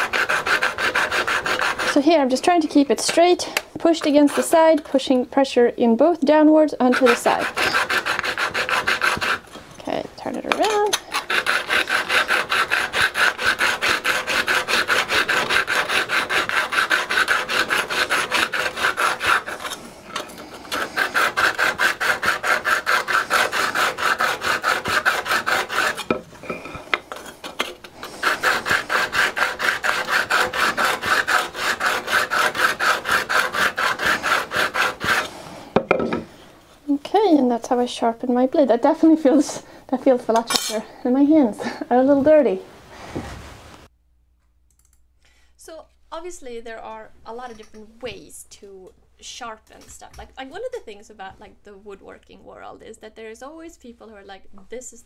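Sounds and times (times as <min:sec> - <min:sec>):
steel grinding on stone: 0:00.0 - 0:05.1, 0:06.3 - 0:36.4.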